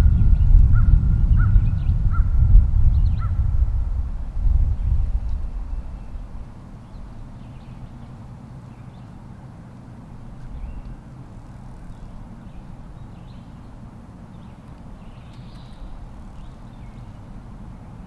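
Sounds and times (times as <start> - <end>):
low rumble: 0.0 - 7.3.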